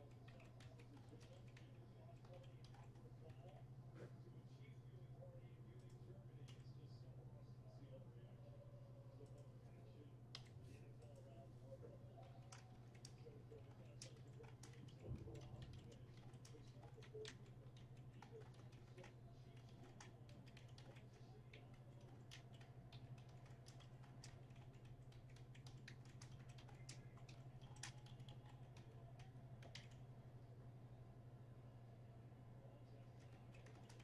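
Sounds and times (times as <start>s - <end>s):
typing on computer keyboard: 0.0s - 3.0s, 12.4s - 30.0s, 33.2s - 34.0s
low electrical hum: 0.0s - 34.0s.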